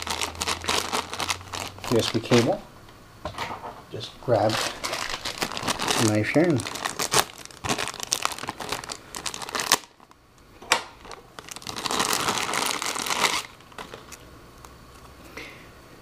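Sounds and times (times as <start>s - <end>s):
plastic bag crinkling: 0.0s - 2.6s, 4.3s - 10.2s, 11.0s - 14.3s.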